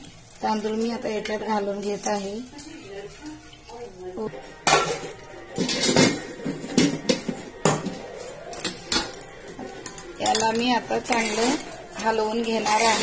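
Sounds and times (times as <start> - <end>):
metal spoon scraping a pot: 4.8 - 13.0.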